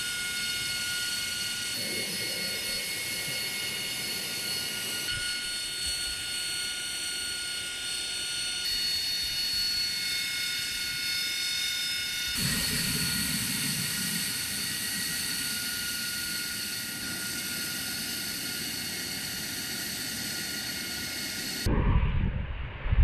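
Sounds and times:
jet engine high whine: 0.0s - 23.0s
low rumble: 21.5s - 23.0s.

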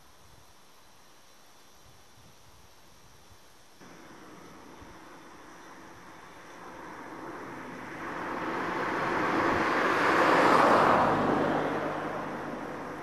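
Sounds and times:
car passing by: 3.8s - 13.0s.

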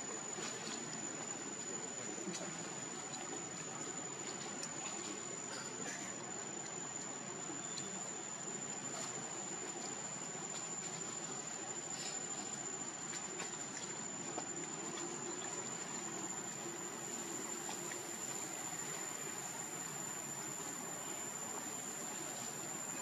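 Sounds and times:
high-pitched insect whine: 0.0s - 23.0s
steady hiss: 0.0s - 23.0s.

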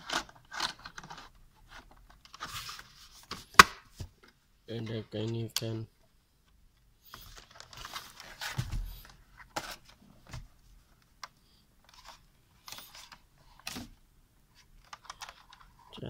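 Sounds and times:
plastic monitor rustling and scraping: 0.0s - 3.6s, 7.0s - 10.5s, 11.8s - 16.0s.

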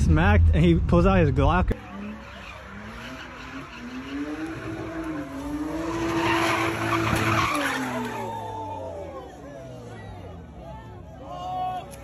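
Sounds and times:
tyres screeching on asphalt: 1.8s - 10.0s.

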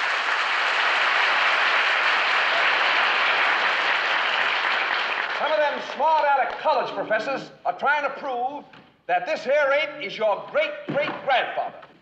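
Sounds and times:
large crowd applauding: 0.0s - 6.6s.

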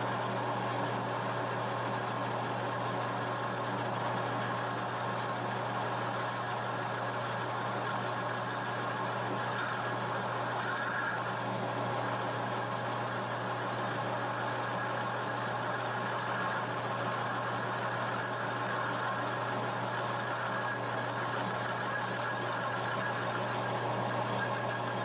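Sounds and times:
lathe running hum: 0.0s - 25.0s
lathe cutting metal squealing: 1.1s - 25.0s.

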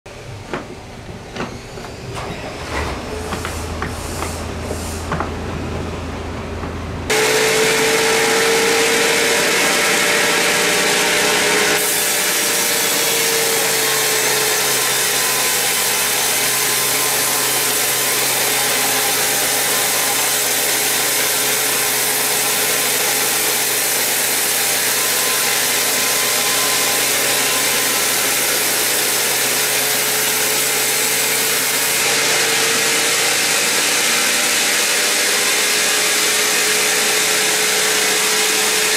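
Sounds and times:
band saw cutting log: 7.1s - 38.9s.

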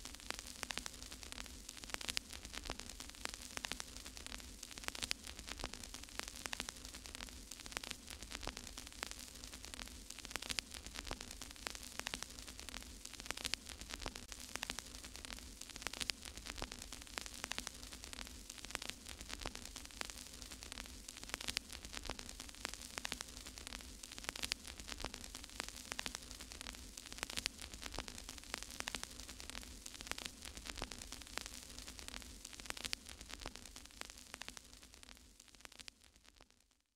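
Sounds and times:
crackling static: 0.0s - 36.9s.

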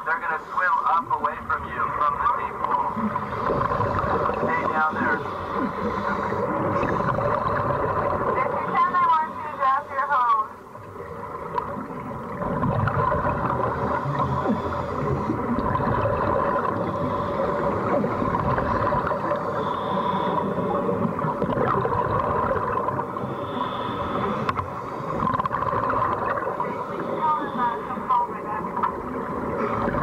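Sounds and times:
faint constant hum: 0.0s - 30.0s
air bubbling into water: 12.2s - 16.9s, 21.1s - 23.0s.

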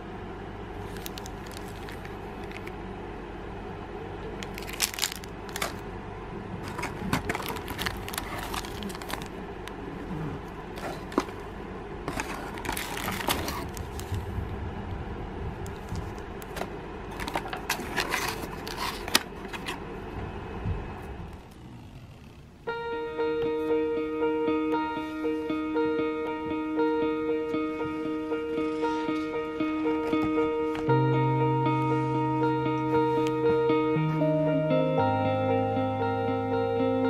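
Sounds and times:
steady low hum: 0.0s - 37.0s
plastic packets crinkling: 0.8s - 2.7s, 4.4s - 5.9s, 6.6s - 9.8s, 10.7s - 11.5s, 12.1s - 14.2s, 15.7s - 19.7s
cardboard box being opened: 6.6s - 9.3s, 12.1s - 14.1s.

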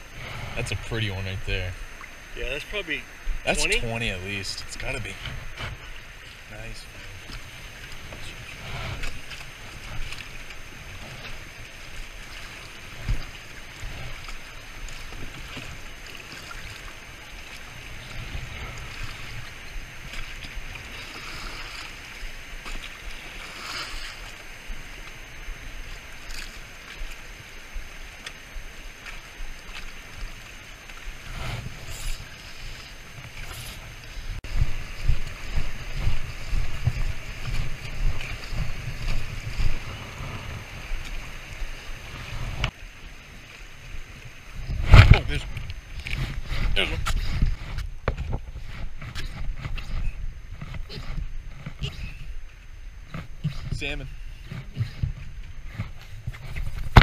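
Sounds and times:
river current rushing: 0.0s - 57.0s
wind buffeting microphone: 33.0s - 42.8s, 44.2s - 57.0s.

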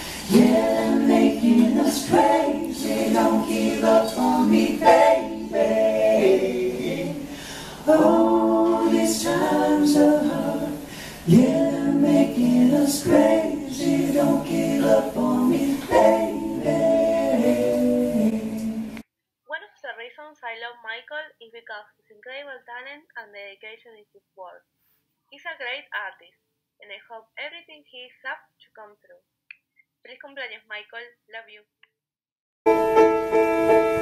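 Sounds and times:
a cappella group singing: 0.0s - 19.0s.

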